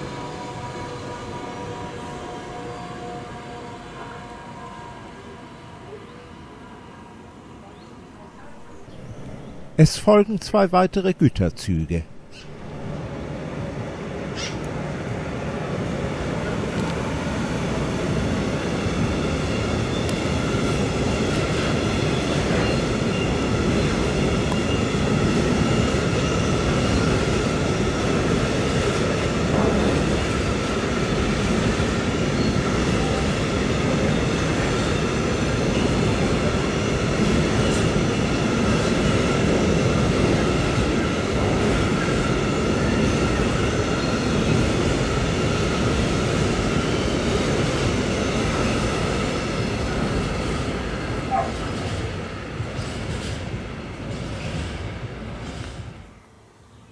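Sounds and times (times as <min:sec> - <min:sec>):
train wheels rumbling on rails: 0:12.3 - 0:56.2.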